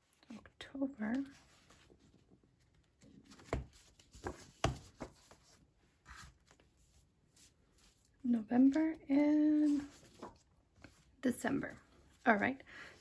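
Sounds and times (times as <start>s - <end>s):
paper pages rustling: 1.1s - 11.1s.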